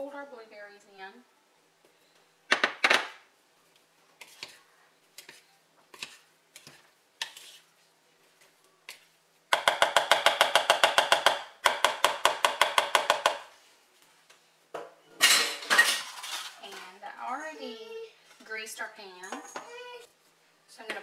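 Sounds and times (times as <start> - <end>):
wooden spoon scraping bowl: 4.2 - 7.8.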